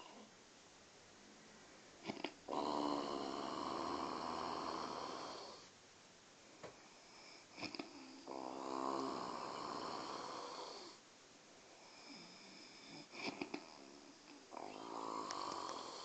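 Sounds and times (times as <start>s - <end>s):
person snoring: 2.0s - 5.7s, 6.8s - 11.0s, 11.8s - 16.0s.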